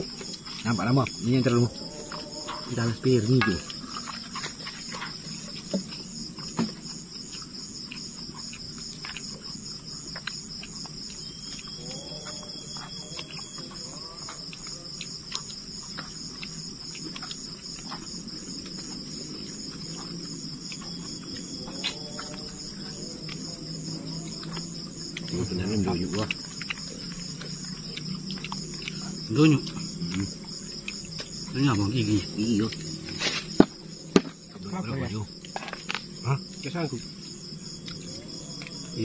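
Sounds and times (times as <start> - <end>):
night insects trilling: 0.0 - 39.0.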